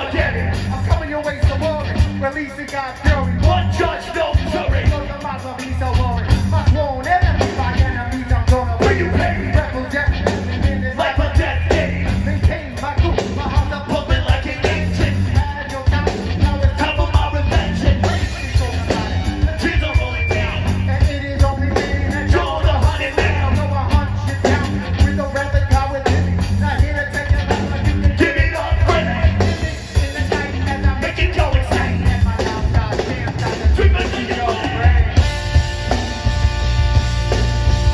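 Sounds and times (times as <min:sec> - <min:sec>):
person singing into microphone: 0:00.0 - 0:35.3
ska band playing live: 0:00.0 - 0:37.9.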